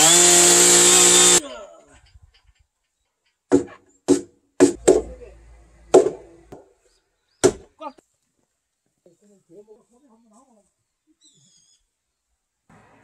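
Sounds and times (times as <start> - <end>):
sharp knocks on a heavy log beam: 3.5 - 5.2, 5.9 - 6.7, 7.4 - 7.7.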